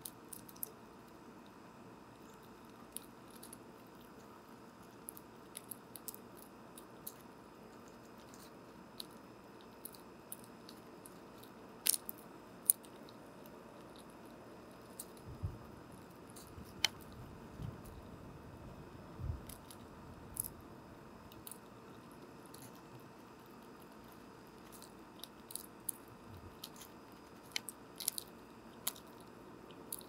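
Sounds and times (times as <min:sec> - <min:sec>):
squirrel chewing crunches: 0:00.0 - 0:30.0.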